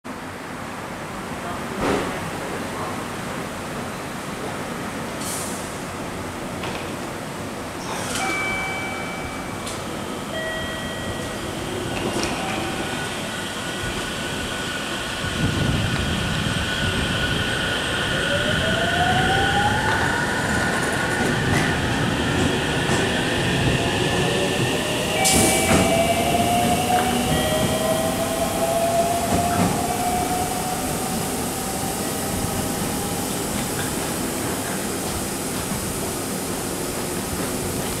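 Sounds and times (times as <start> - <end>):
train running noise: 7.8 - 38.0.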